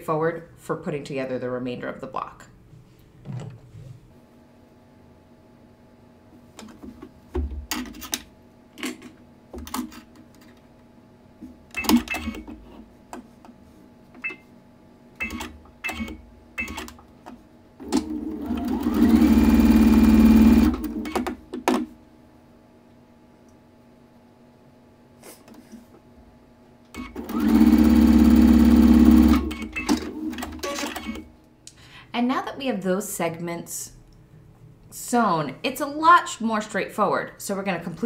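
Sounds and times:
sewing machine stitching: 17.8s - 21.3s, 27.0s - 31.3s.

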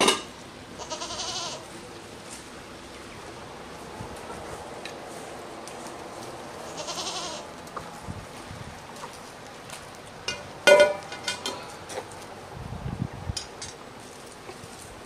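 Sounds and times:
goat bleating: 0.8s - 1.7s, 6.6s - 7.6s.

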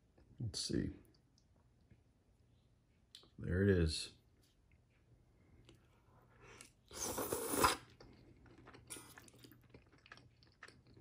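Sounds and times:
person slurping noodles: 6.6s - 8.0s
chewing with wet mouth clicks: 7.9s - 11.0s.

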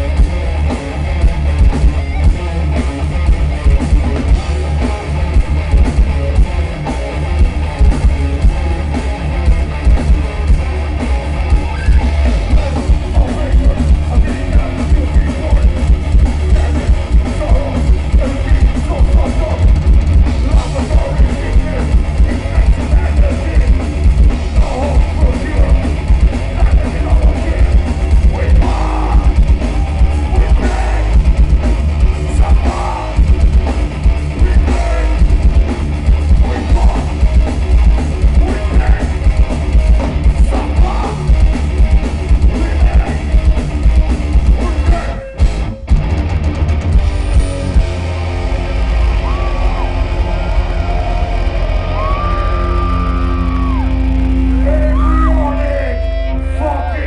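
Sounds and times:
distorted electric guitars: 0.0s - 57.0s
pounding drums: 3.2s - 54.8s
singer shouting vocals: 11.6s - 15.8s, 16.4s - 19.8s, 20.4s - 23.8s, 24.6s - 31.4s, 32.2s - 33.2s, 34.3s - 35.4s, 36.3s - 37.2s, 38.2s - 39.3s, 40.4s - 41.4s, 42.4s - 43.4s, 44.5s - 45.4s, 49.2s - 57.0s.

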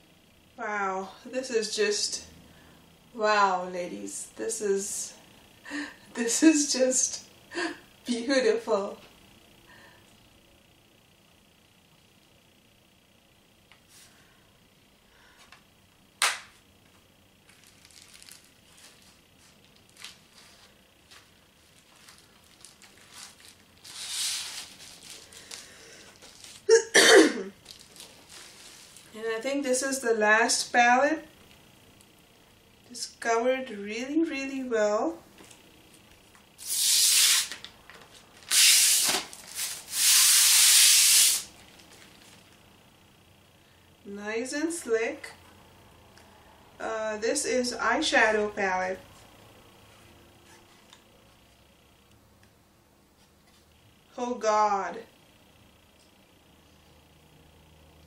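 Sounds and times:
bubble wrap rustling: 17.4s - 26.8s, 27.5s - 29.2s, 36.6s - 42.6s.

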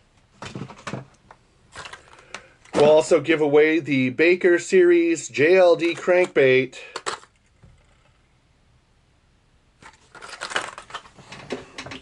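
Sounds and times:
packaging rustling and knocks: 0.4s - 2.9s, 9.8s - 12.0s.

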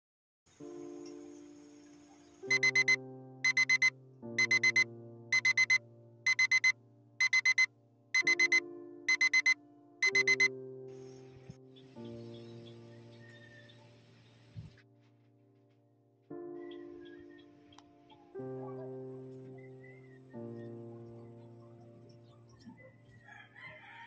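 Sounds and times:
phone alarm beeping: 2.5s - 10.5s
soft sustained music chords: 9.8s - 14.6s.

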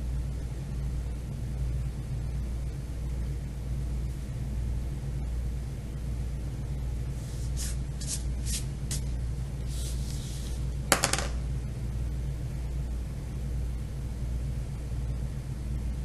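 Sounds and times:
steady low hum: 0.0s - 16.0s
crayon scratching on paper: 7.2s - 9.1s
paper sliding on tabletop: 7.2s - 11.2s.

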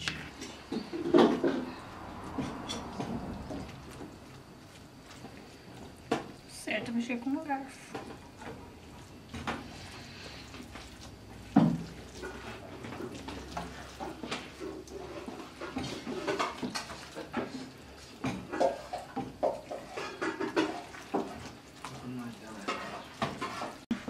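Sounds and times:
plastic spatula scraping a pan: 9.4s - 24.0s.

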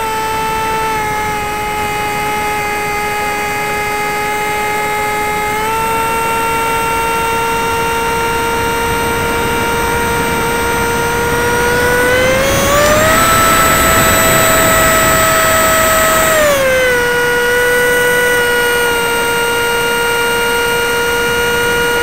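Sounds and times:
model plane propeller whining: 0.0s - 22.0s
rushing air: 6.0s - 17.5s.

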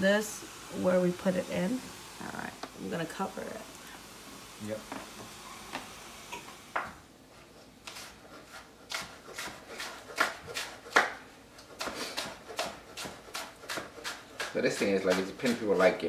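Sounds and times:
knife chopping on wooden board: 7.9s - 16.0s.

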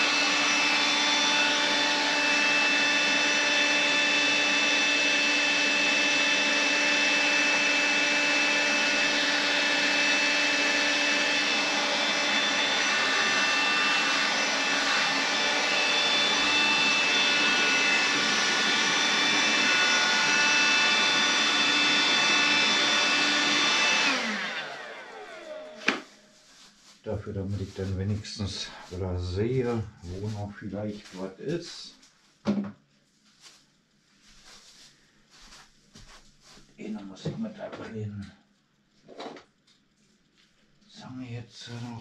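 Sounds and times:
handheld vacuum cleaner whine: 0.0s - 26.6s.

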